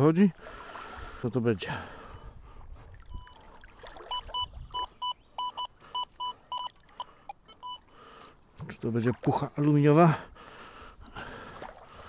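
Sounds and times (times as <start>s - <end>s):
metal detector beeping: 4.1s - 7.9s.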